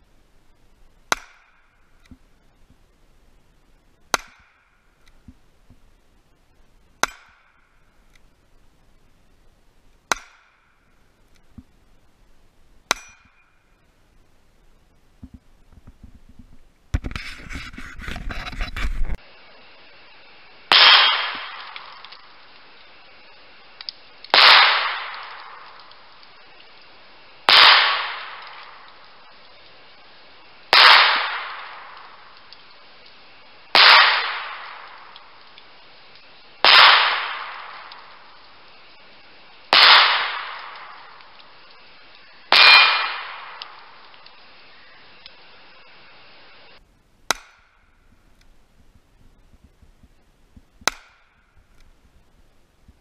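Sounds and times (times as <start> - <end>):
steel target ringing: 12.9 - 13.6, 42.5 - 43.6
rough noise: 15.2 - 19.4
pistol shots: 20.7 - 21.8, 24.3 - 25.6, 27.5 - 28.8, 30.7 - 32.0, 33.8 - 34.9, 36.6 - 37.9, 39.7 - 41.1, 42.5 - 43.8.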